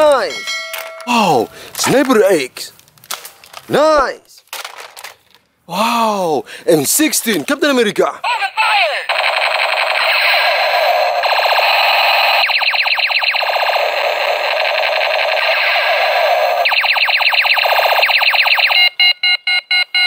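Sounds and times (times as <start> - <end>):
toy rifle electronic firing sound: 9.1 - 18.9.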